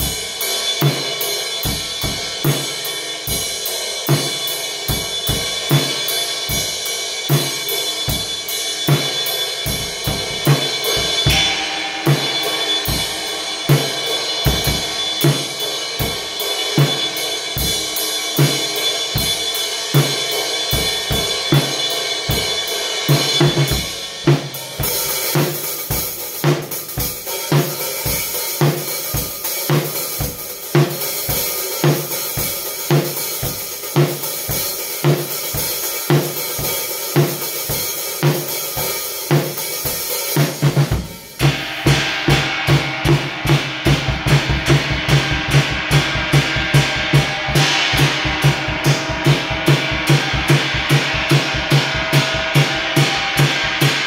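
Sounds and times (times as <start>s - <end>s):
cymbals playing: 0.0s - 54.0s
bass drum: 7.3s - 17.8s, 23.1s - 25.6s, 40.4s - 54.0s.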